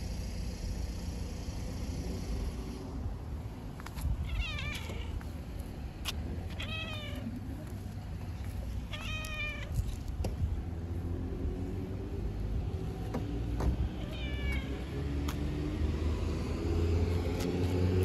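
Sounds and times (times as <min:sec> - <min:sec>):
low steady rumble: 0:00.0 - 0:17.5
cat meowing: 0:04.2 - 0:05.2, 0:06.5 - 0:07.4, 0:08.9 - 0:10.0, 0:14.0 - 0:14.9.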